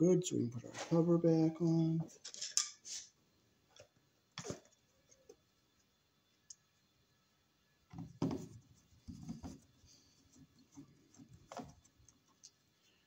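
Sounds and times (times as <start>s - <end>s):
knocks and scrapes: 7.9s - 12.0s.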